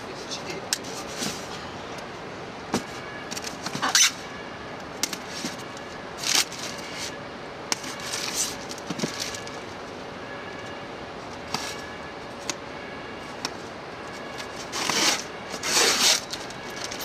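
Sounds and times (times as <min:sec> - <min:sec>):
foam boxes scraping and rustling: 0:00.8 - 0:01.6, 0:05.2 - 0:07.2, 0:07.8 - 0:09.7, 0:14.2 - 0:17.0.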